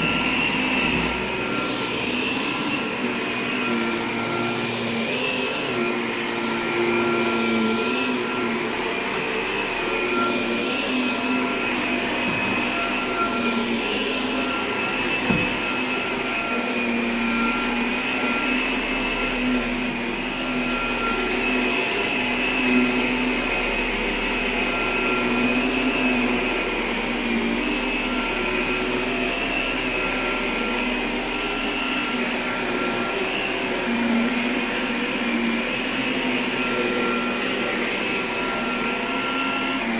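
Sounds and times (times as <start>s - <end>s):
vacuum cleaner whining: 0.0s - 39.9s.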